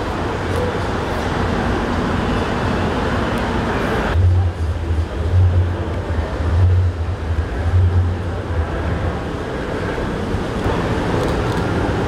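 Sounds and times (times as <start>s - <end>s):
low street rumble: 0.0s - 12.0s
pulsing deep hum: 4.2s - 9.6s.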